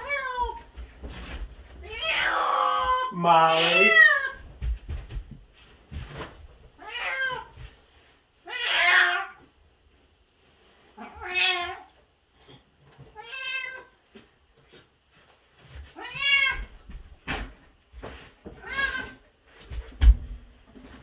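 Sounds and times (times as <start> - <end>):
cat meowing: 1.8 - 4.4, 6.8 - 7.5, 8.4 - 9.4, 11.0 - 11.9, 13.2 - 13.9.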